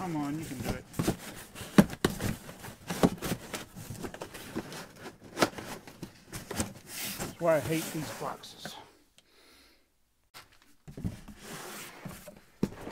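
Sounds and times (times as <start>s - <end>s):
cardboard box rustling and crackling: 0.0s - 8.4s.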